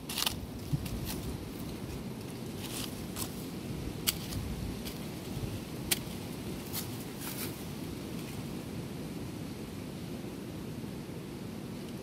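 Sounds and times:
dry leaves rustling: 0:00.0 - 0:08.4.

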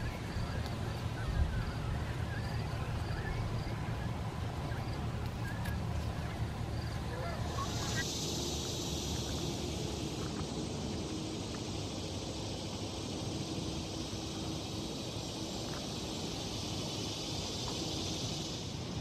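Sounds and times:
wind rumbling on microphone: 0:00.0 - 0:07.2
steady high hiss: 0:00.0 - 0:19.0.

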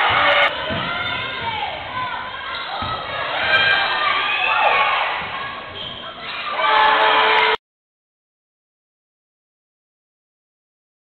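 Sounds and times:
crowd shouting and cheering: 0:00.0 - 0:07.6.

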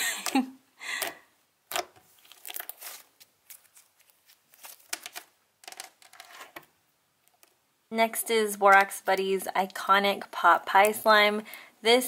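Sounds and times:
slime squelching and crackling: 0:01.7 - 0:05.1.

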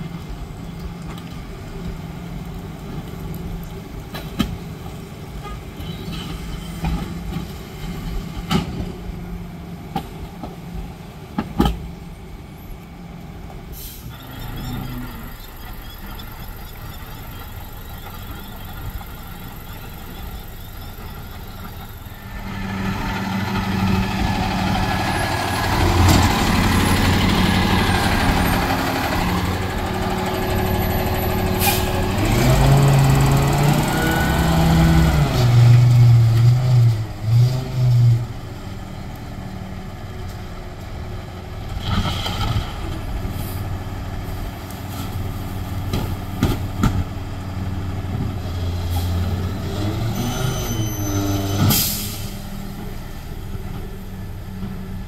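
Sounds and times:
diesel truck engine: 0:00.0 - 0:55.0
air brakes hissing: 0:13.7 - 0:14.4, 0:31.5 - 0:32.0, 0:50.2 - 0:52.6.

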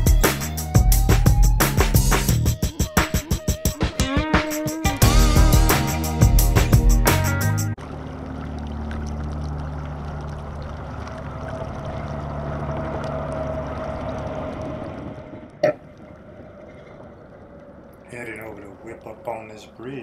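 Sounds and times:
low steady hum: 0:07.8 - 0:20.0
water rushing along hull: 0:07.8 - 0:20.0.

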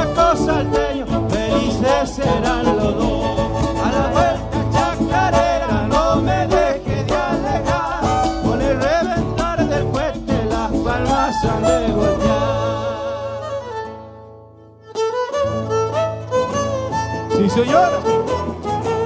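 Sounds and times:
folk band playing: 0:00.0 - 0:19.0.

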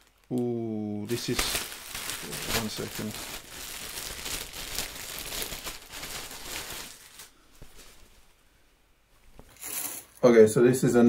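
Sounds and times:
packaging and shirt rustling: 0:01.1 - 0:08.4.

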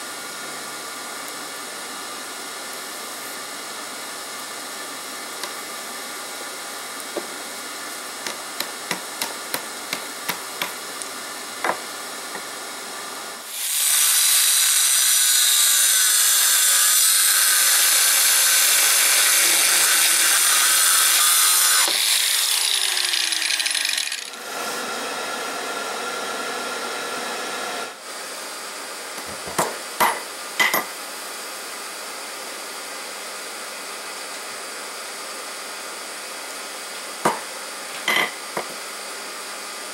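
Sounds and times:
angle grinder cutting steel: 0:13.5 - 0:24.5.

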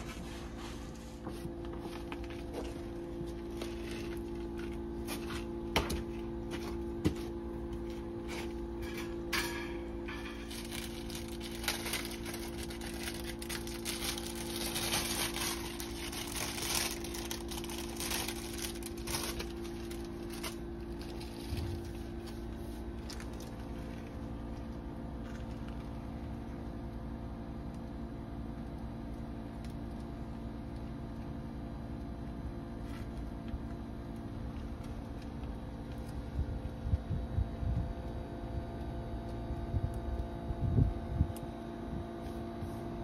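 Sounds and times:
paper sticker crinkling: 0:00.0 - 0:05.6, 0:10.1 - 0:26.0
air conditioner unit humming: 0:00.0 - 0:43.0.

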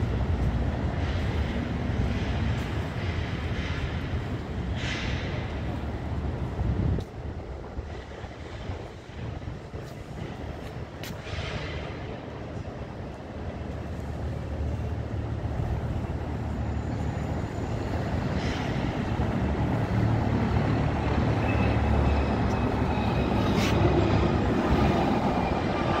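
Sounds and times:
passing vehicles rumbling: 0:00.0 - 0:26.0.

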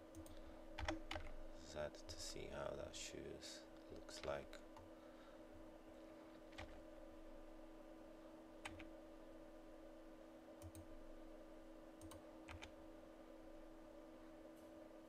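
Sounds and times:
steady low hum: 0:00.0 - 0:15.0
computer mouse and key clicks: 0:00.1 - 0:01.4, 0:04.2 - 0:04.9, 0:06.5 - 0:06.8, 0:08.6 - 0:08.9, 0:10.6 - 0:10.9, 0:12.0 - 0:12.8.

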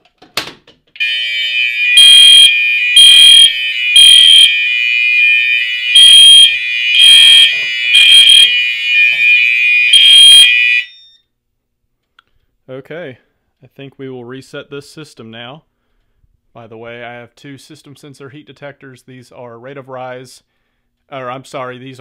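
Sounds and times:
fire alarm tone and blasts: 0:01.0 - 0:11.3.

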